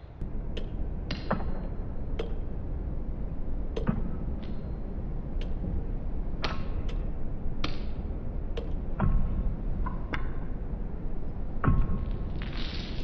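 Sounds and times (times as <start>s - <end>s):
steady low rumble: 0.0s - 13.0s
sharp clicks and knocks: 2.2s - 2.4s.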